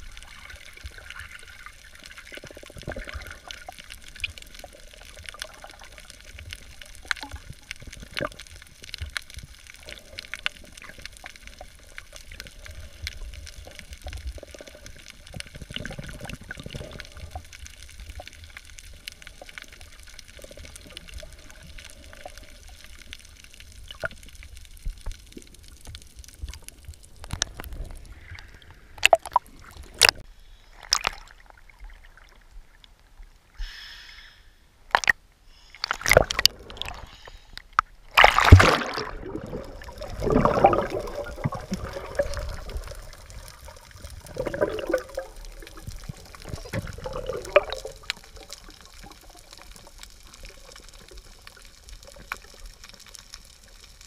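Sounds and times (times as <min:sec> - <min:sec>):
water bubbling: 0:00.0 - 0:30.2, 0:35.8 - 0:37.2, 0:38.1 - 0:53.7
low underwater rumble: 0:38.0 - 0:52.1.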